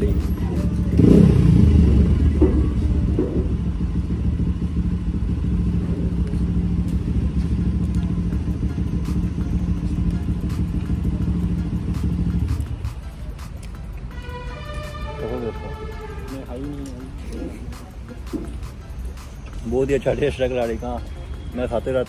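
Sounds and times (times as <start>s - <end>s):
engine running steadily: 0.0s - 14.1s.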